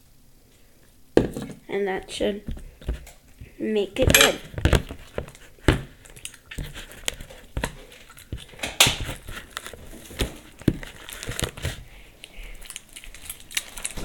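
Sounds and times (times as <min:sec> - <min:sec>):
slime squishing and popping: 0:04.0 - 0:11.8.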